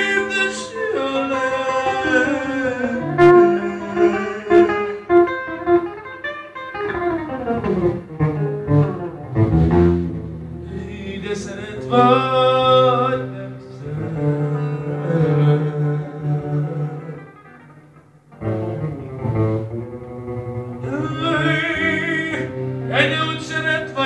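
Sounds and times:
man singing into a microphone: 0:00.0 - 0:05.4, 0:10.6 - 0:17.4, 0:20.4 - 0:24.0
electric guitar accompaniment: 0:00.0 - 0:24.0.

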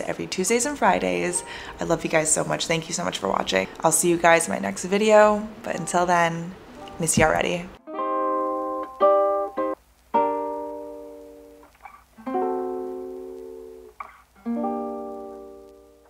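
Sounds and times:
strummed acoustic string chords: 0:05.5 - 0:11.6.

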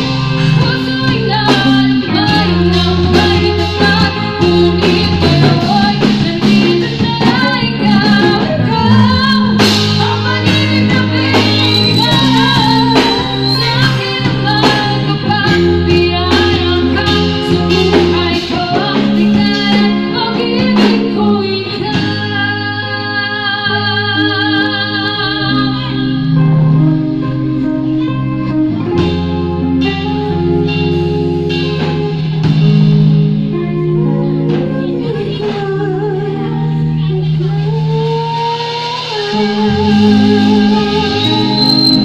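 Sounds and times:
drum kit: 0:00.0 - 0:42.0
electric bass: 0:00.0 - 0:42.0
electric guitar: 0:00.0 - 0:42.0
women singing: 0:00.5 - 0:26.4, 0:34.5 - 0:42.0.

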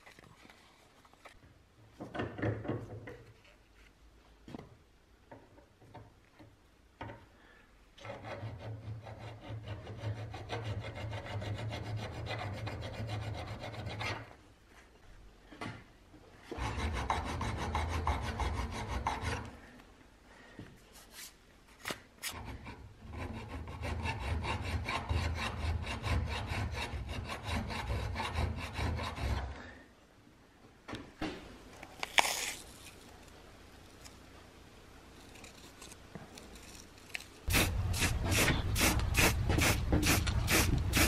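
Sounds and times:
file scraping metal: 0:08.0 - 0:14.4, 0:16.5 - 0:19.5, 0:22.3 - 0:29.8, 0:37.5 - 0:41.0.

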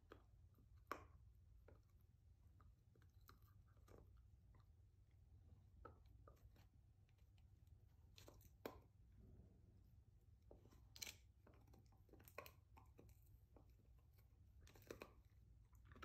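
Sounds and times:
dog chewing bone: 0:00.0 - 0:04.8, 0:10.4 - 0:16.0.

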